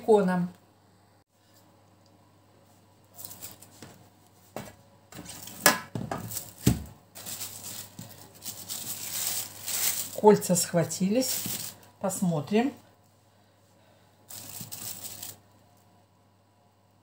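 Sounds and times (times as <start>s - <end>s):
cellophane crinkling: 3.1s - 3.7s, 5.2s - 12.0s, 14.3s - 15.7s.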